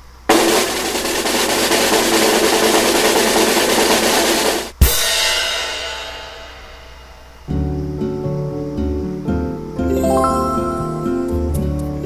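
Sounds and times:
snare drum roll: 0.3s - 6.5s
cymbal crash: 0.3s - 7.5s.

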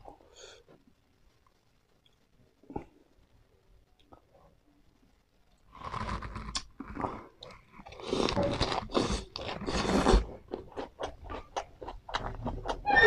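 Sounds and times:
crunchy chewing: 5.7s - 12.9s.

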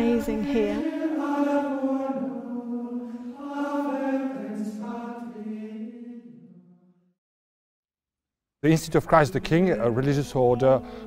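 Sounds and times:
chant sung on held notes: 0.0s - 6.6s.

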